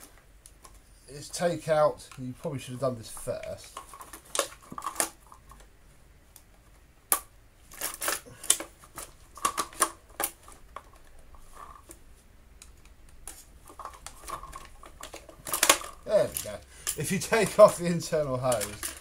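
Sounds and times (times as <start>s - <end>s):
plastic clicks and rattles: 3.1s - 5.7s, 7.1s - 12.0s, 12.6s - 17.7s, 18.4s - 19.0s.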